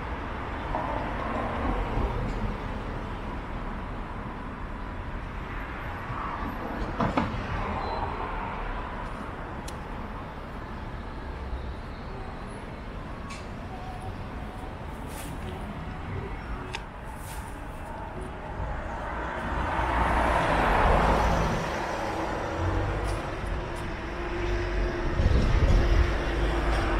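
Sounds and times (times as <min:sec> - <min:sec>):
cars passing: 0:00.0 - 0:26.9.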